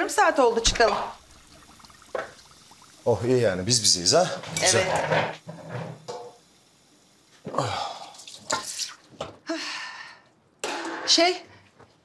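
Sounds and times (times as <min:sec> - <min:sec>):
water splashing and dripping: 0:00.0 - 0:09.2
metal bowl and dishes knocking: 0:04.4 - 0:05.4.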